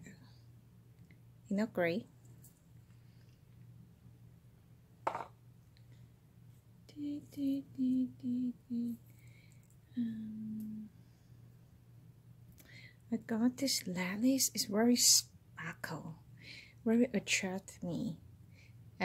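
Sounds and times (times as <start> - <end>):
woman softly singing: 6.9 - 9.1, 9.9 - 11.0.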